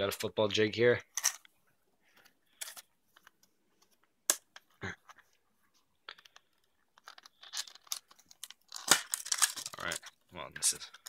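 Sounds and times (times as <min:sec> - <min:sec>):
plastic packaging crinkling: 0:07.1 - 0:10.8.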